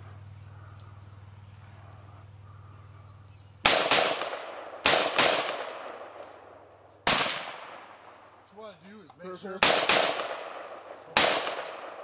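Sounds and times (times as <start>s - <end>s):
pistol shots with echo: 3.6s - 6.4s, 7.0s - 8.1s, 9.6s - 12.0s.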